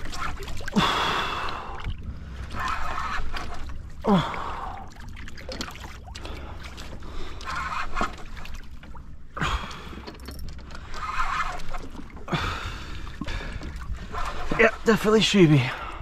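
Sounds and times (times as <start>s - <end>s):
water sloshing against hull: 0.0s - 16.0s
steady low rumble: 1.0s - 2.5s.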